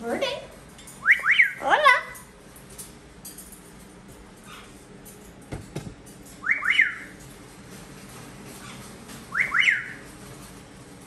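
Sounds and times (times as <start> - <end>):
parrot whistling: 1.0 - 1.6, 6.4 - 7.1, 9.3 - 10.0.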